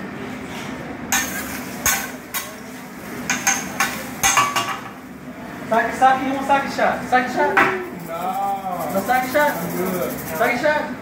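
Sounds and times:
steady hum: 0:00.0 - 0:11.0
metal spatula clacking on griddle: 0:01.1 - 0:02.6, 0:03.3 - 0:04.9.

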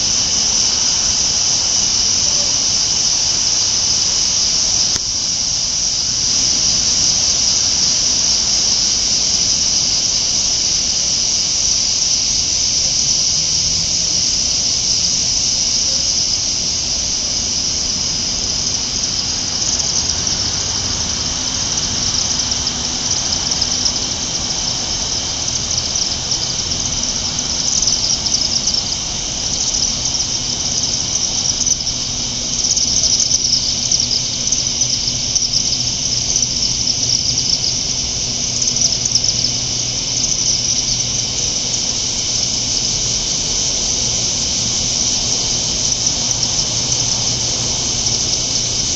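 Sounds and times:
swifts twittering: 0:17.2 - 0:48.9.

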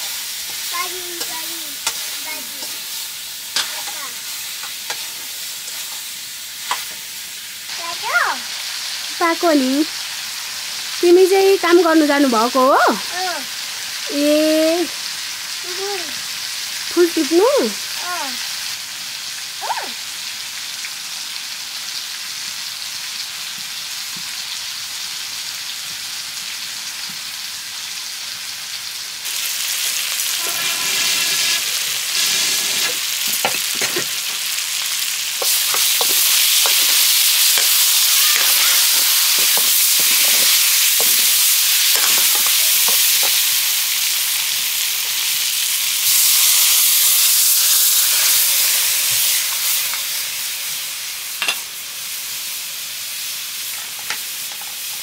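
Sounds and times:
spoon scraping a pan: 0:00.0 - 0:07.0, 0:30.2 - 0:43.6, 0:51.4 - 0:51.7
curry sizzling in a pan: 0:00.0 - 0:55.0.

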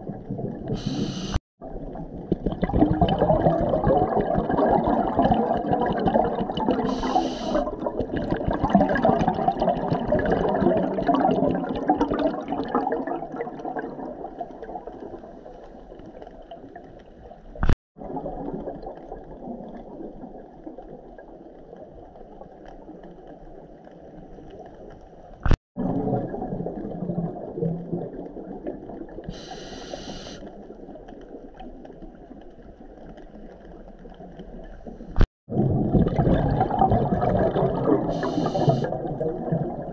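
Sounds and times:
bubbles rushing underwater: 0:00.0 - 0:15.4, 0:18.0 - 0:22.7, 0:25.8 - 0:29.7, 0:35.5 - 0:39.9
regulator inhalation hiss: 0:00.8 - 0:01.4, 0:06.9 - 0:07.6, 0:29.3 - 0:30.5, 0:38.2 - 0:38.9.

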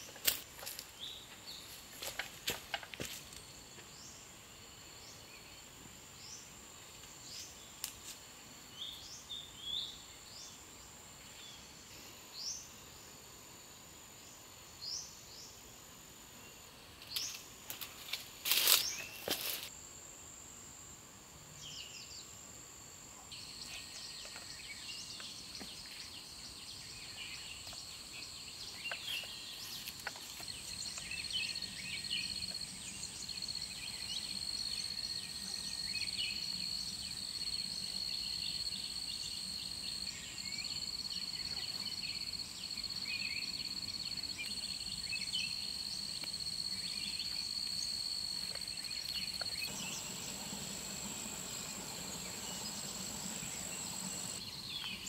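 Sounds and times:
insects droning: 0:00.0 - 0:55.0
birds chirping: 0:48.7 - 0:55.0.

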